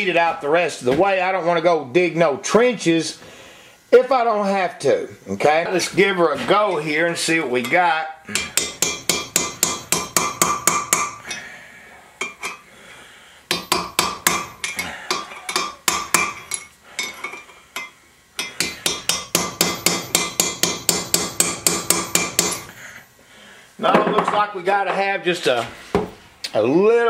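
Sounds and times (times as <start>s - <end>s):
hammer striking steel punch: 8.3s - 11.2s, 13.5s - 16.7s, 18.4s - 22.7s.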